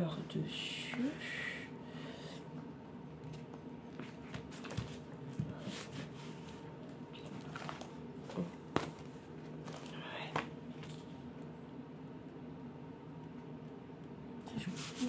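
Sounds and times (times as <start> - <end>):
steady low hum: 0.0 - 15.0
wallpaper rustling and crackling: 3.2 - 11.1.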